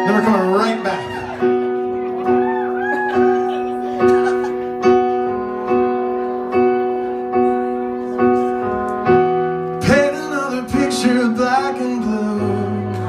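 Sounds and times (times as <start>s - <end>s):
piano chords ringing: 0.0s - 13.0s
person singing: 9.8s - 13.0s.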